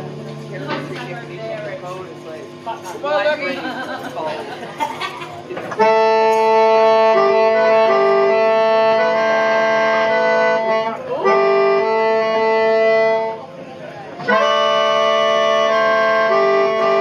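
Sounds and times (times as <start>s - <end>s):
reedy free-reed chords: 5.8s - 17.0s.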